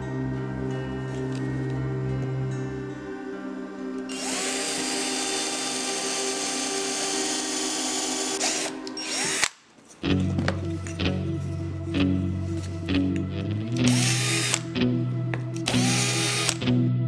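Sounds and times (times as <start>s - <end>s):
power drill boring through fibreboard: 4.1s - 9.5s, 13.9s - 14.6s, 15.7s - 16.6s.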